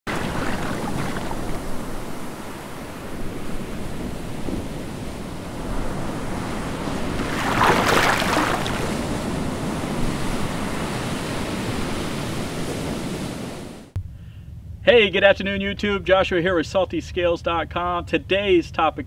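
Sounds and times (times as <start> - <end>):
ocean waves washing: 0.0 - 14.0.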